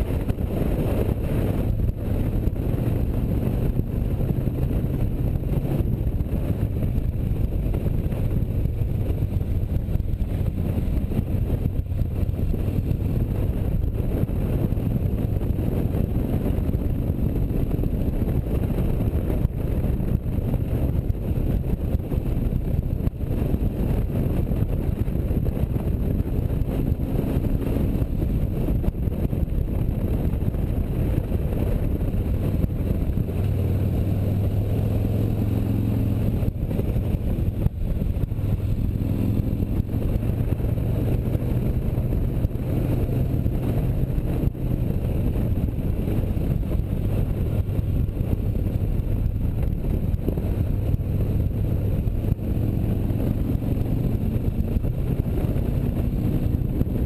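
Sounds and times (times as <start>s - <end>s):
motorcycle engine running: 0.0s - 57.0s
wind noise on microphone: 0.0s - 57.0s.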